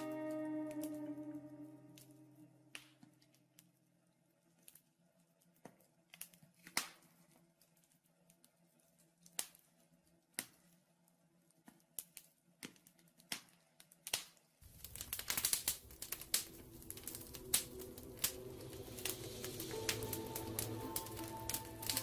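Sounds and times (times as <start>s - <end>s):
wood fire crackling and popping: 4.4s - 10.8s, 11.5s - 22.0s
background rush: 15.6s - 22.0s.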